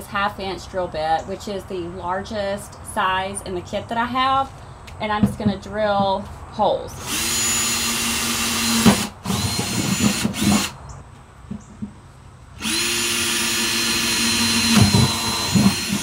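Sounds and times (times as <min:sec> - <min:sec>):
cordless drill whining: 0:07.0 - 0:10.8, 0:12.6 - 0:16.0
drill bit crackling through plastic: 0:07.0 - 0:10.8, 0:12.6 - 0:16.0.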